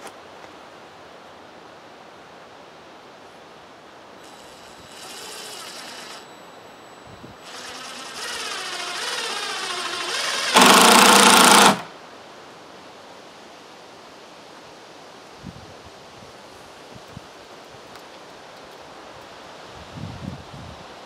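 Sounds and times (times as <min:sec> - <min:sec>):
impact driver motor whine: 0:04.2 - 0:06.4, 0:07.4 - 0:11.9
impact driver hammering: 0:07.4 - 0:11.9.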